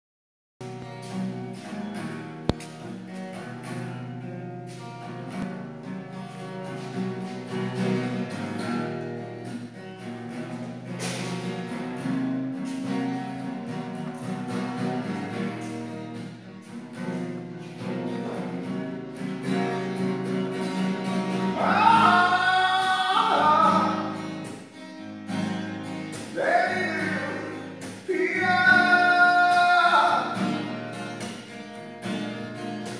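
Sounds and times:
acoustic guitar: 0.6s - 32.9s
man singing: 21.5s - 24.2s, 26.3s - 30.6s.

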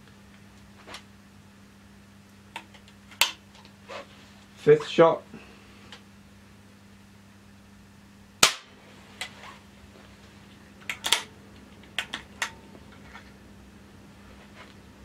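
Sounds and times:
air rifle shot: 8.4s - 8.8s
rifle handling clicks: 10.8s - 11.3s.

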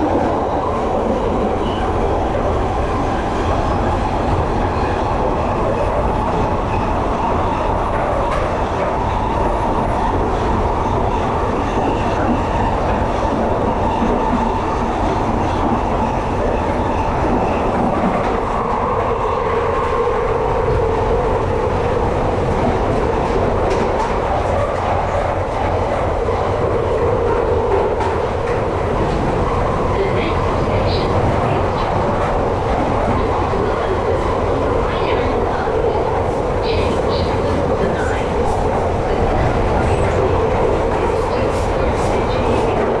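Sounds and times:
train wheels rumbling on rail: 0.0s - 43.0s.

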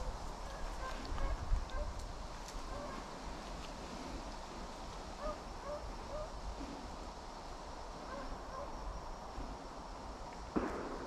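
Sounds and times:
distant hounds baying: 0.0s - 2.0s, 2.6s - 3.3s, 5.2s - 6.8s, 7.9s - 9.0s
steady wind: 0.0s - 11.0s
sharp crack: 10.4s - 11.0s.

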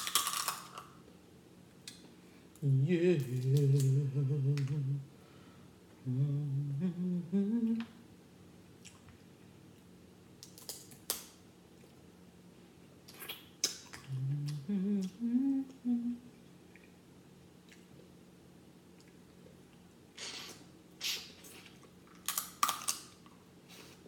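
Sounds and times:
woman humming: 2.6s - 5.1s, 6.0s - 8.0s, 14.0s - 16.3s.

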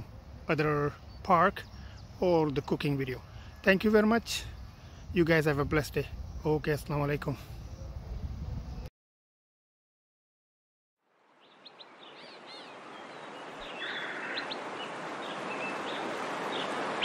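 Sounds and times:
birds chirping: 0.0s - 8.8s, 11.4s - 17.0s
steady outdoor hiss: 0.0s - 8.9s, 11.0s - 17.0s.

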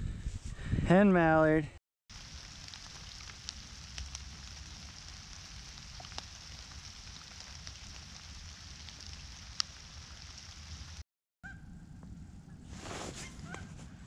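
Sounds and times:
light rain hissing: 2.1s - 11.0s
raindrops ticking: 2.1s - 11.0s.

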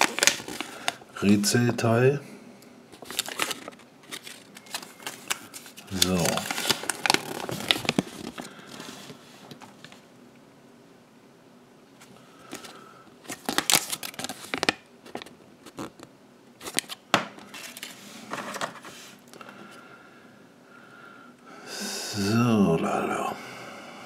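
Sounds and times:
paper leaflets rustling: 0.0s - 1.6s, 3.0s - 10.0s, 12.4s - 16.0s, 16.6s - 19.2s.

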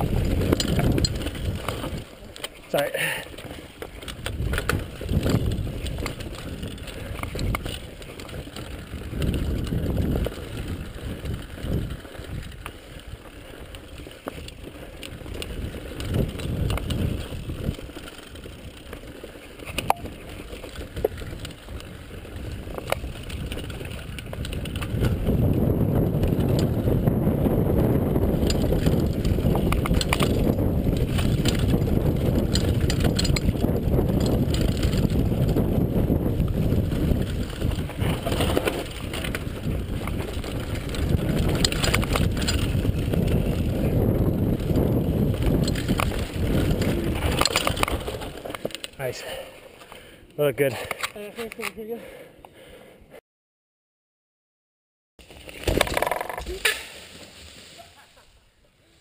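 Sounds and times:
wind rushing on microphone: 0.0s - 2.1s, 4.0s - 13.3s, 14.6s - 17.9s, 19.7s - 49.4s
bike tyres rolling and rattling: 0.0s - 52.7s, 55.2s - 59.0s.

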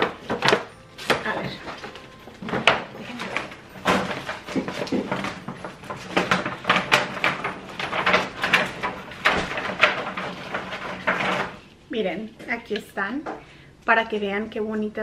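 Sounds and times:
plastic packaging crinkling: 0.0s - 11.8s.

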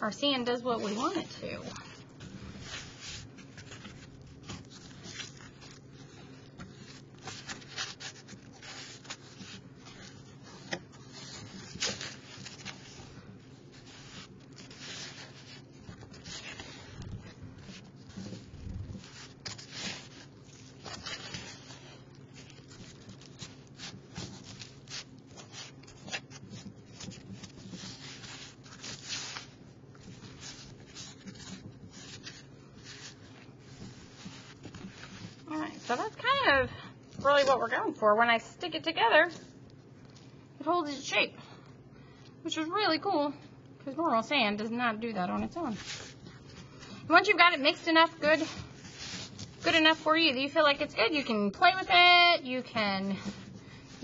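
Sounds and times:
hands kneading sand: 0.2s - 36.6s, 47.7s - 50.0s.

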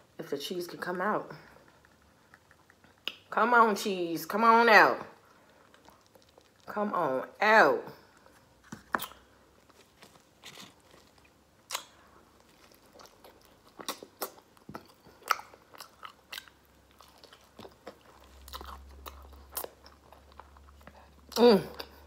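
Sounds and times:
person chewing sandwich: 1.5s - 3.3s, 5.2s - 6.7s, 8.1s - 22.0s
wet mouth clicks and smacks: 1.7s - 3.3s.

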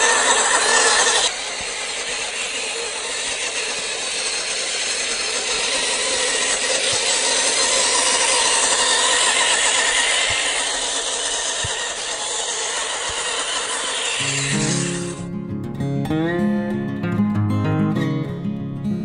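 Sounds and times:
toy car motor and gears: 0.0s - 15.2s
tyres grinding over grit: 0.0s - 15.2s.

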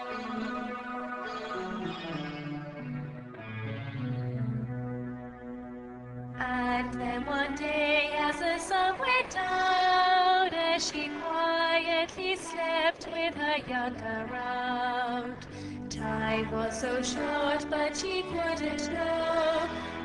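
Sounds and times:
low sustained notes: 0.0s - 20.0s
woman singing slow melody: 6.4s - 20.0s.

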